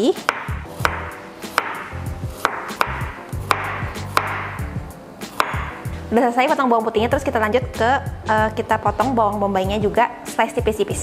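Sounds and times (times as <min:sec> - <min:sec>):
knife knocking on wooden board: 0:00.3 - 0:04.7, 0:05.3 - 0:05.8.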